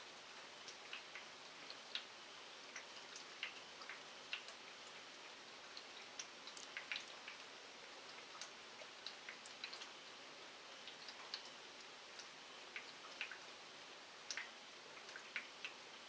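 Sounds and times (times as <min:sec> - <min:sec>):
raindrops ticking: 0:02.7 - 0:05.0, 0:05.8 - 0:07.5, 0:12.2 - 0:13.5, 0:14.2 - 0:15.8.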